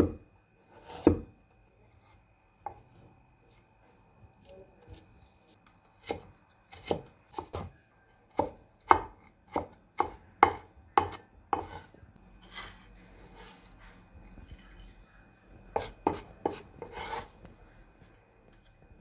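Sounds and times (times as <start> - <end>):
cleaver chopping on wooden board: 8.4 - 11.8
soft scrape: 11.6 - 15.0, 15.8 - 18.7.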